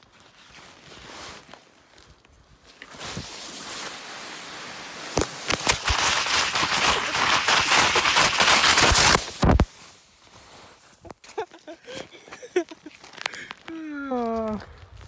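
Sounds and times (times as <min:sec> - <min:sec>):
footsteps crunching in deep snow: 0:00.0 - 0:11.4
clothing rubbing on microphone: 0:02.8 - 0:11.1.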